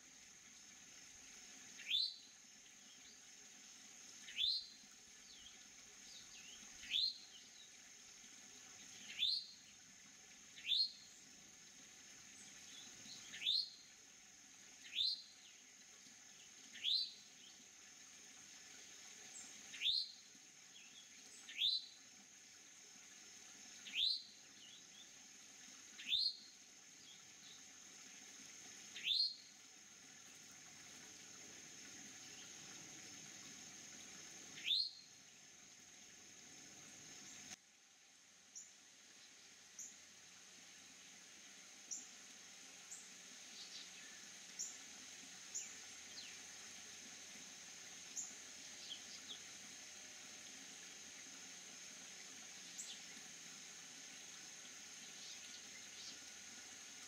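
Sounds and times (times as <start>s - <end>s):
songbird chirping: 1.8s - 3.3s, 4.2s - 7.8s, 8.7s - 9.8s, 10.6s - 11.3s, 12.3s - 13.9s, 14.8s - 15.7s, 19.3s - 22.0s, 23.7s - 25.2s, 25.9s - 27.8s, 28.9s - 29.6s, 30.2s - 35.6s, 42.8s - 44.8s, 48.0s - 49.5s.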